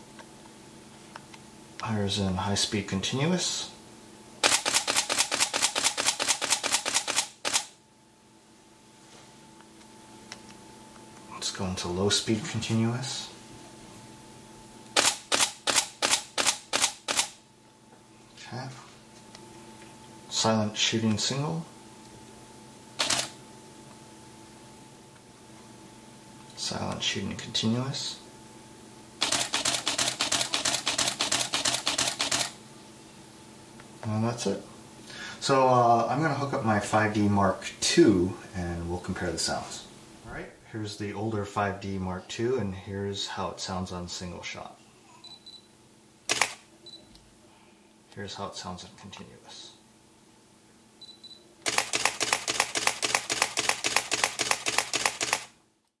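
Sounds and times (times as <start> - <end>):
camera shutter clicks: 4.4 - 7.7, 15.0 - 17.4, 23.0 - 23.4, 29.2 - 32.6, 46.3 - 46.6, 51.6 - 55.5
camera short high beeps: 51.0 - 51.4.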